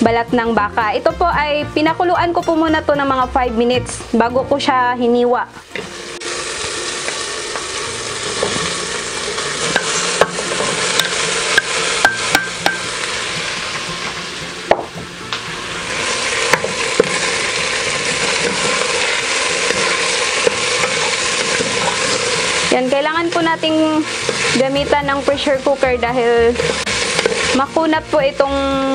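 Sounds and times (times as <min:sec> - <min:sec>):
meat sizzling in hot oil: 0:04.6 - 0:28.9
spoon knocking against pot: 0:09.7 - 0:12.9.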